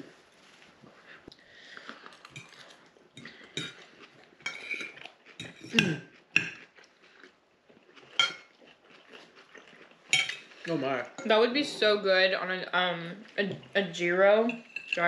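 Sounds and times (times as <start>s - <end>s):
cutlery clinking against bowls: 2.3s - 3.8s, 4.4s - 6.6s, 8.2s - 8.5s, 10.1s - 10.5s, 14.4s - 15.0s.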